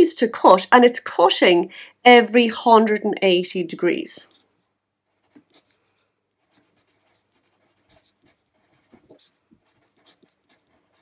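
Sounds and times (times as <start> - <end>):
pencil scratching on paper: 4.2 - 11.0.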